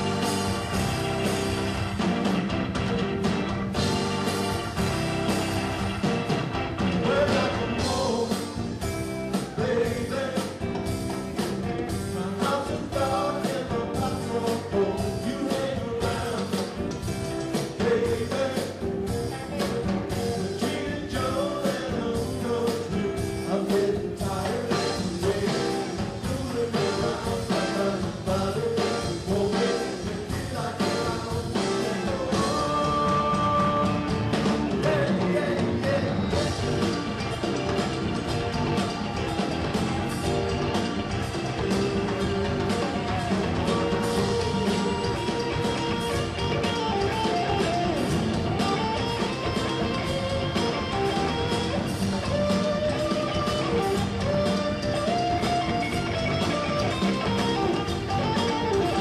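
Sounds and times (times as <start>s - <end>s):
congas: 0.0s - 59.0s
drum kit: 0.0s - 59.0s
electric bass: 0.0s - 59.0s
electric guitar: 0.0s - 59.0s
organ: 0.0s - 59.0s
male lead vocal: 6.9s - 11.0s, 11.8s - 36.6s.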